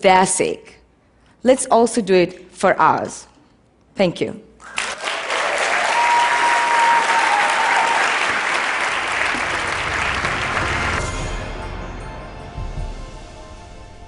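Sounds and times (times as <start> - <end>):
audience applauding: 4.6 - 11.4
low pulsing music: 8.7 - 14.0.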